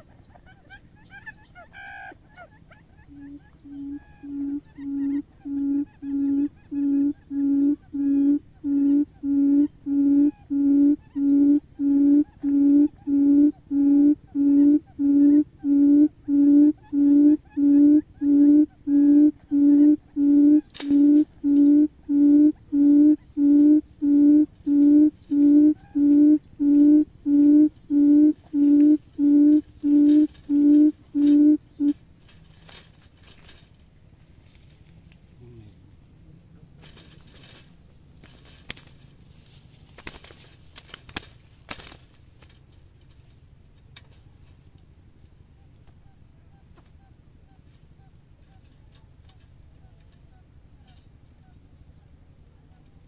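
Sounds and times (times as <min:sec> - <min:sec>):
bird hooting call: 0:00.0 - 0:32.0
soft clicks and rustles: 0:29.5 - 0:35.4, 0:36.7 - 0:46.0.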